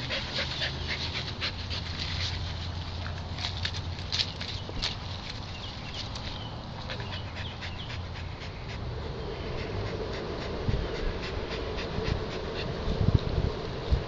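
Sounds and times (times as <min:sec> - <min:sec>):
dog panting: 0:00.0 - 0:03.2, 0:05.6 - 0:12.8.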